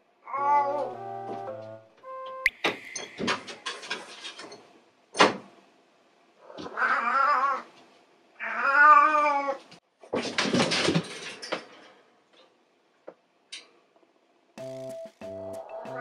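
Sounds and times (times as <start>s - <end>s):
cat yowling: 0.2s - 0.9s, 6.6s - 7.7s, 8.4s - 9.6s.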